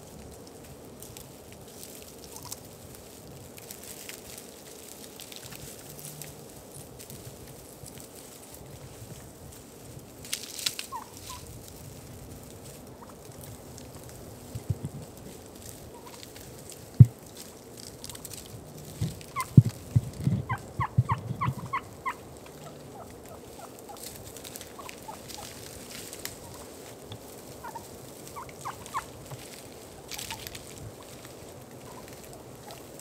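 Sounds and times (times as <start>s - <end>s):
wild turkeys calling: 2.2s - 2.6s, 10.8s - 11.5s, 12.8s - 14.1s, 15.9s - 16.7s, 18.0s - 33.0s.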